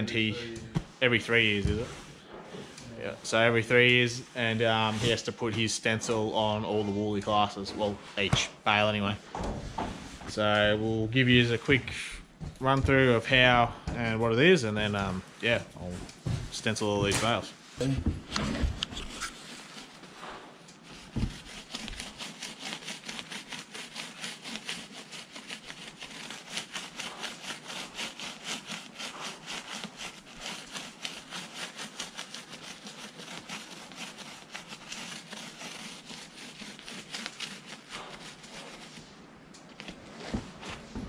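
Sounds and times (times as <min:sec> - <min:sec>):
stencil brush scrubbing: 0:00.0 - 0:11.9, 0:14.4 - 0:41.0.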